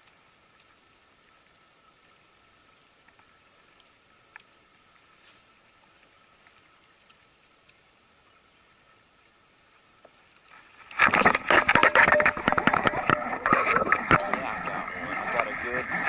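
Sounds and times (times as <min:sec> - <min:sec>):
soft ticks: 0:00.0 - 0:02.3, 0:03.0 - 0:05.0, 0:05.8 - 0:07.9, 0:10.0 - 0:10.6
faint background hiss: 0:00.0 - 0:11.1
thin high whine: 0:10.5 - 0:16.0.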